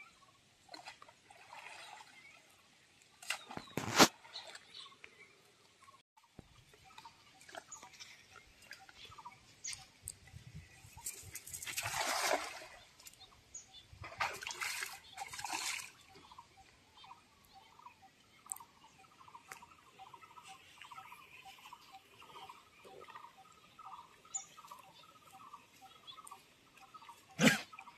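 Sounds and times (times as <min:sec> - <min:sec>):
splash on pond water: 0:00.7 - 0:02.5, 0:03.2 - 0:04.8, 0:11.4 - 0:13.1, 0:14.0 - 0:16.0.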